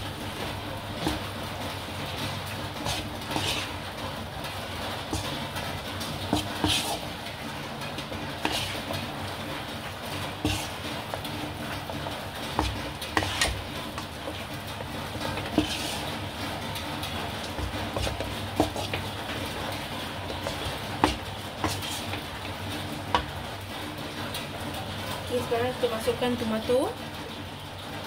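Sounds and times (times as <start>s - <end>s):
spatula scraping in a wok: 0.0s - 25.2s
frying hiss: 0.0s - 28.0s
spatula knocking against pan: 20.4s - 21.9s.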